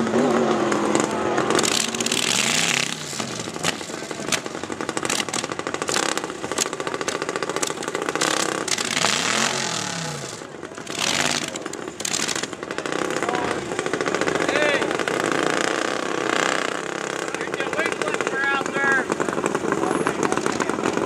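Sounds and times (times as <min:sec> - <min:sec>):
engine revving: 0:00.0 - 0:21.0
mini bike engines running: 0:00.0 - 0:21.0.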